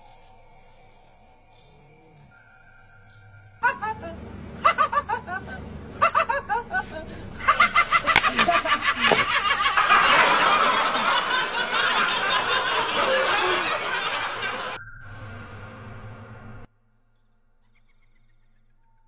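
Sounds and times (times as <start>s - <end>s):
faint steady tone: 0.0s - 16.7s
continuous shrill din: 3.2s - 16.7s
shrill laughter: 3.6s - 14.8s.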